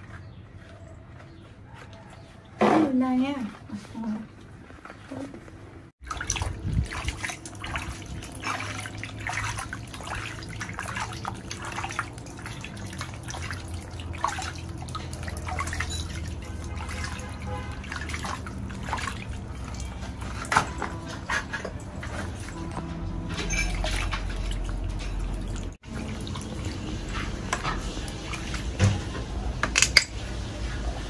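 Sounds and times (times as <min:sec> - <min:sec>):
water splashing in a plastic basin: 0:06.0 - 0:21.4, 0:23.4 - 0:29.1.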